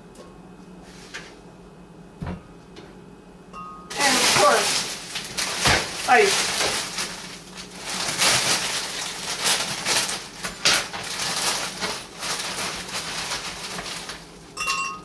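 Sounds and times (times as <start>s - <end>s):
plastic bag crinkling: 3.9s - 14.6s
ice clattering: 3.9s - 15.0s.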